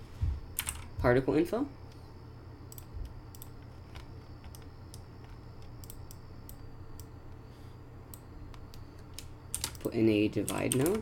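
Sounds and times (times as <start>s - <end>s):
steady low hum: 0.0s - 11.0s
mouse and keyboard clicks: 2.7s - 6.2s.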